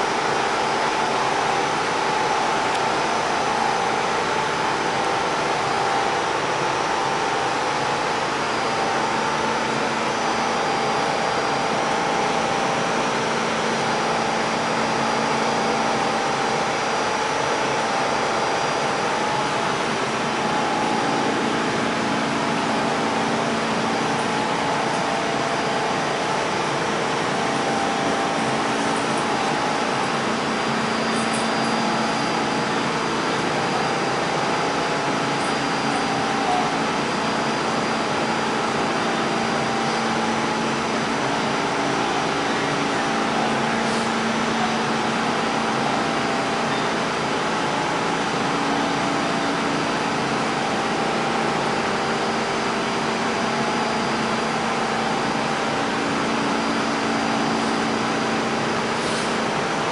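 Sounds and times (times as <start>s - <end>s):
subway car rushing hiss: 42.4s - 45.5s, 58.6s - 59.9s.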